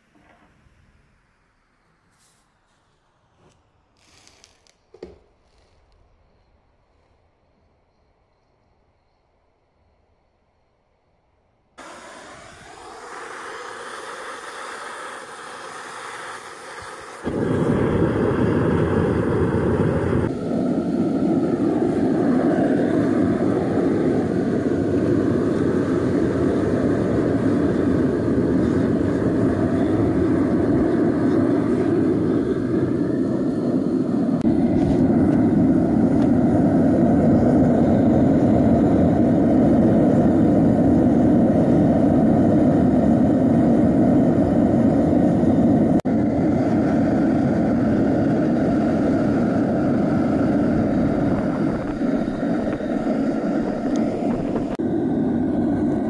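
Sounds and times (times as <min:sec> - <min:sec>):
gas burner rushing: 0:11.8 - 0:56.0.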